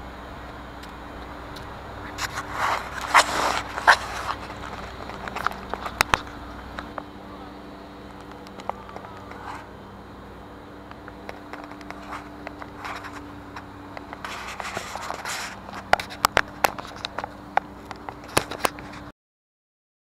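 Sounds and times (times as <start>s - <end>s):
steady low hum: 0.0s - 19.1s
fingers scraping camera body: 2.0s - 7.0s, 11.0s - 19.1s.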